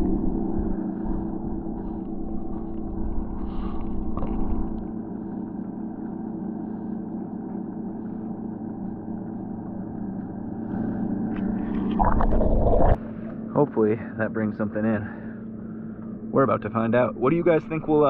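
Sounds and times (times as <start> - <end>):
outboard motor running: 0.0 - 18.0.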